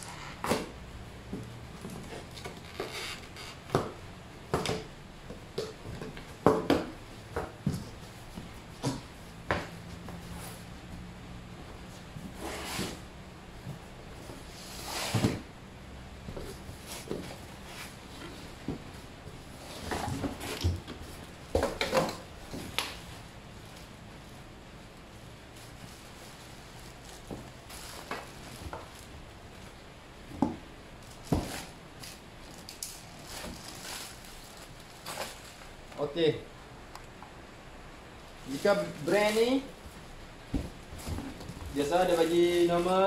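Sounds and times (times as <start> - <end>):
cardboard boxes knocking on concrete: 3.7 - 10.0, 19.8 - 22.8
cardboard boxes scraping on concrete: 12.3 - 13.2, 14.3 - 15.5
plastic packaging rustling: 25.2 - 29.2, 31.0 - 36.0, 38.3 - 43.0
packaging rustling: 31.0 - 36.0.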